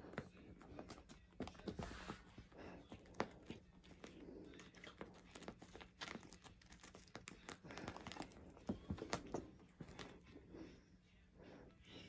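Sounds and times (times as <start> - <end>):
kitten crinkling a toy: 0.0 - 10.4.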